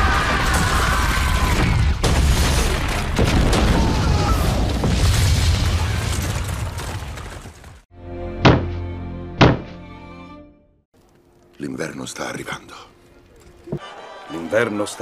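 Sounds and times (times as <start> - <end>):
debris falling: 0.0 - 7.8.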